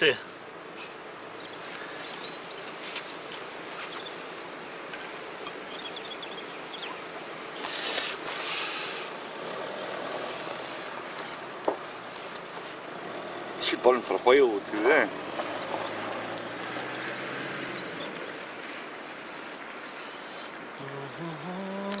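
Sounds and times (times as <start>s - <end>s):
outdoor background noise: 0.0s - 22.0s
firewood handling rustle: 1.6s - 4.0s, 7.6s - 12.9s.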